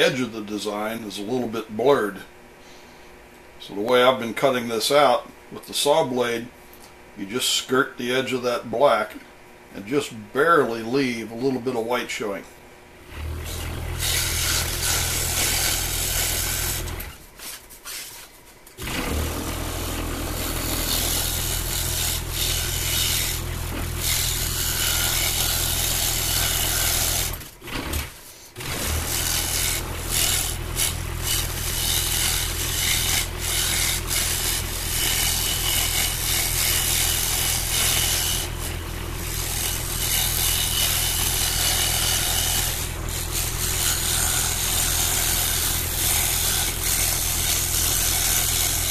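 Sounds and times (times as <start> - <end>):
scroll saw cutting wood: 13.0 - 18.2, 18.8 - 48.9.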